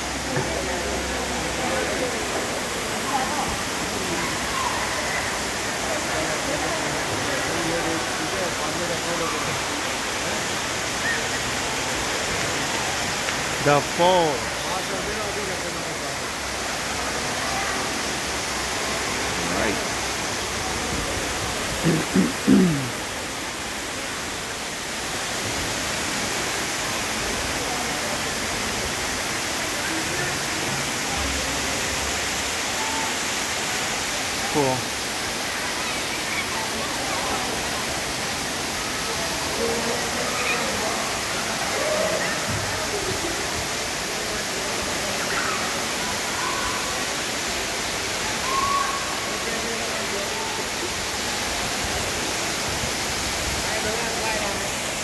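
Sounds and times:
indoor waterfall rushing: 0.0 - 55.0
person calling: 21.8 - 22.9.

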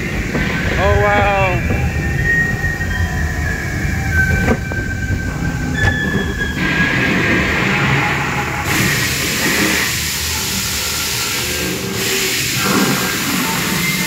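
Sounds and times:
low ride rumble: 0.0 - 14.0
hissing rush: 6.4 - 14.0.

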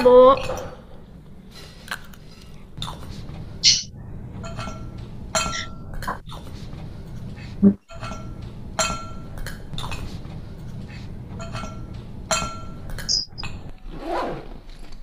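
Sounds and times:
low hum: 0.0 - 13.8
spoon clinking on plate and glass: 3.7 - 5.7.

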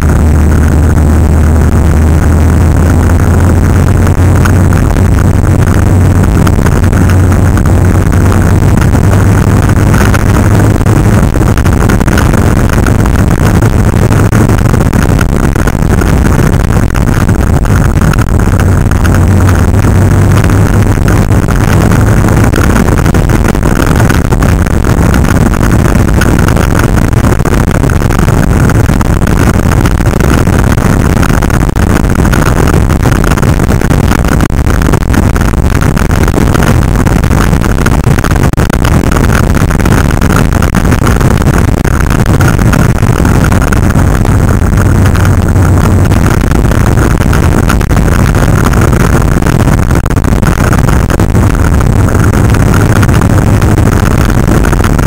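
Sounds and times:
motorcycles running: 0.0 - 55.0
wind noise on microphone: 0.0 - 55.0.

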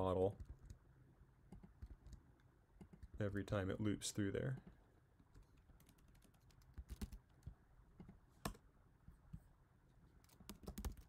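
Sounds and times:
computer keyboard keystrokes: 5.8 - 7.2, 10.3 - 11.0.

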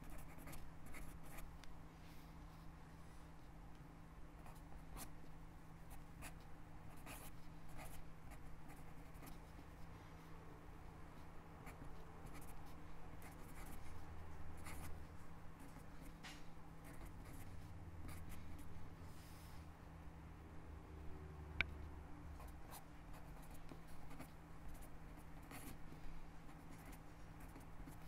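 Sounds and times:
pen scratching on paper: 0.0 - 1.5, 4.4 - 5.1, 5.9 - 9.8, 11.2 - 14.0, 14.6 - 15.0, 16.8 - 18.4, 22.4 - 28.0.

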